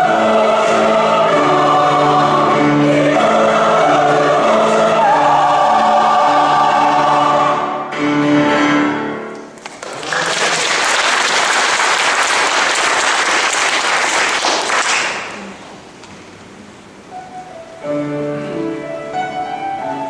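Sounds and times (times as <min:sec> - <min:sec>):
choir singing with strings: 0:00.0 - 0:09.3
audience applause: 0:09.6 - 0:15.5.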